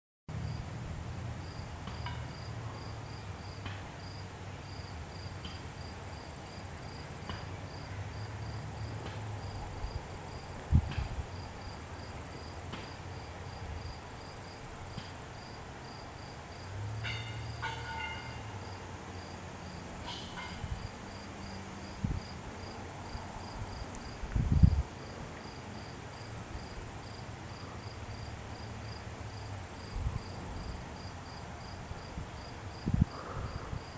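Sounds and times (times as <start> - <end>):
insects chirping: 0.4 - 7.1, 7.7 - 33.9
wind rumble on microphone: 9.6 - 11.4, 21.9 - 22.5, 23.2 - 25.0, 29.8 - 30.9, 31.8 - 33.9.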